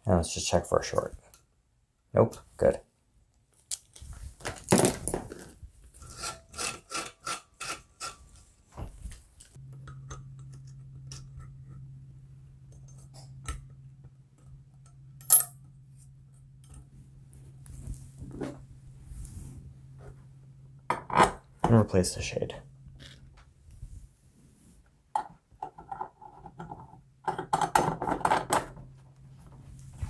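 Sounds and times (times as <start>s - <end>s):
steady low hum: 8.3s - 25.2s, 28.8s - 30.0s.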